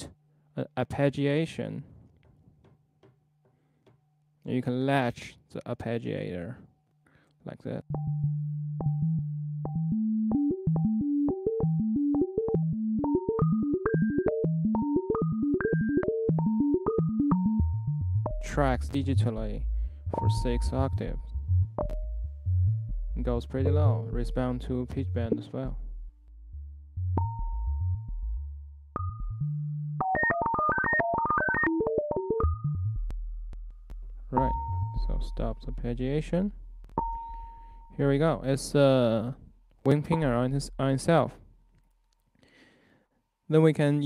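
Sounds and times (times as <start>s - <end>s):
low bass notes: 7.9s - 13.7s, 16.4s - 30.0s, 32.4s - 41.3s
synthesizer arpeggio: 7.9s - 18.5s, 26.9s - 33.7s
fast synthesizer arpeggio: 9.8s - 18.2s.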